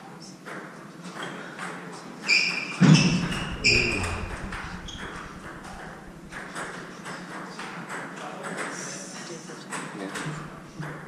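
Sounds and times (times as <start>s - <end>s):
sneakers squeaking on wooden floor: 2.3s - 4.0s.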